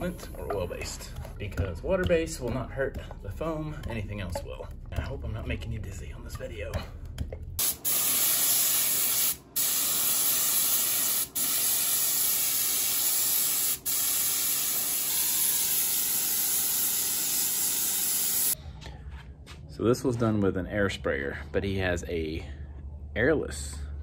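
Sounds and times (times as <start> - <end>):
spray gun hissing: 7.6 - 18.6.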